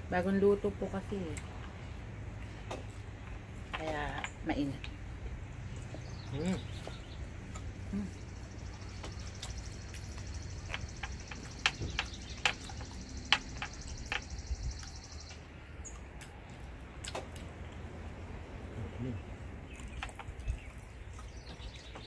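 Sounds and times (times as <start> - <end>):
low background hum: 0.0 - 22.0
cricket trilling: 6.3 - 15.4
sharp clicks: 9.0 - 16.4.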